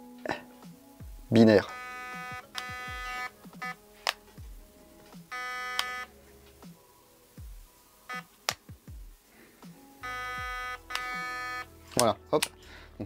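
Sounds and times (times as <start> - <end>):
electronic trigger beeping: 1.7 - 3.8, 5.3 - 6.1, 10.0 - 11.7
sharp clicks: 1.7 - 4.2, 5.3 - 6.1, 10.8 - 12.6.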